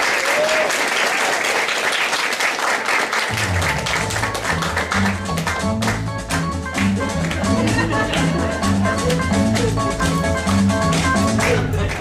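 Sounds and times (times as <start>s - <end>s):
audience applause: 0.0s - 12.0s
music with bass line and melody: 3.3s - 12.0s.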